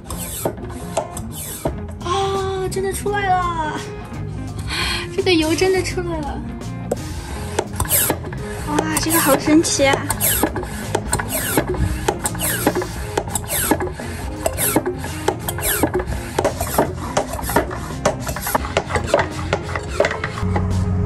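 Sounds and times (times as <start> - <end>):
pump plunger rasping: 0.0 - 2.0, 6.9 - 20.5
oil suction clicks and squeaks: 0.0 - 2.1, 6.9 - 20.5.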